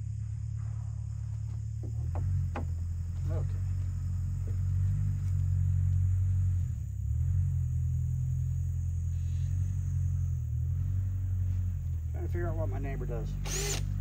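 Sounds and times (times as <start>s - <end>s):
vehicle engine rumbling: 0.0s - 14.0s.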